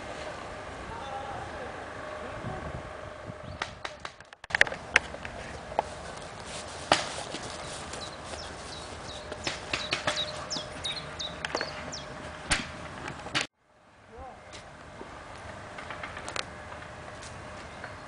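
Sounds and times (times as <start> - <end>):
bird chirping: 7.4 - 12.2.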